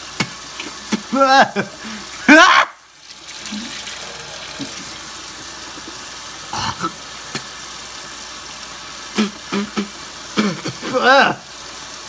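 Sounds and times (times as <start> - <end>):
faucet running into metal sink: 2.9 - 9.2
short mouth sounds: 9.2 - 10.8.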